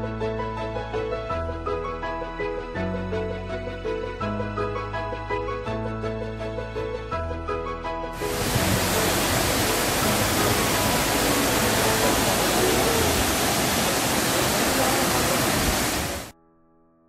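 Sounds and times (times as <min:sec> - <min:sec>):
waterfall roaring: 0:08.2 - 0:16.3.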